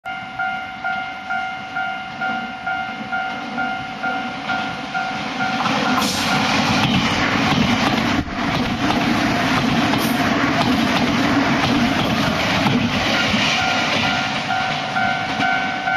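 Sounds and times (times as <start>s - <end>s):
level crossing bell ringing: 0.1s - 5.6s, 14.1s - 15.9s
electric train passing: 0.1s - 15.9s.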